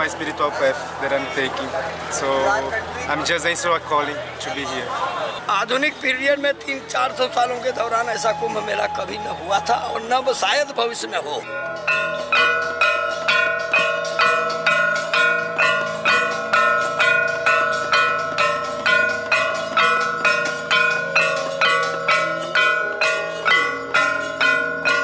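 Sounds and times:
metal gongs struck with mallets: 0:11.4 - 0:25.0.

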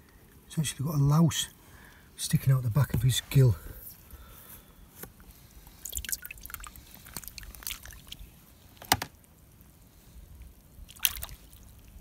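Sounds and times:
water dripping: 0:05.2 - 0:12.0
small water splashes: 0:05.6 - 0:09.2, 0:10.6 - 0:12.0
sharp splash: 0:05.8 - 0:08.2, 0:10.9 - 0:11.8.

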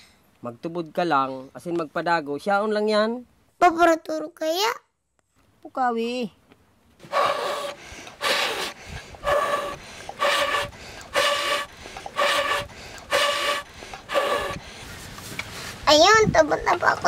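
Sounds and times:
boy blowing on embers: 0:07.0 - 0:15.9.

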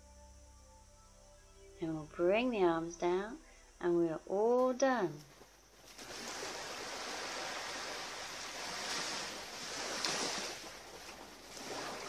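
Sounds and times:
sea waves washing against rocks: 0:05.9 - 0:12.0.

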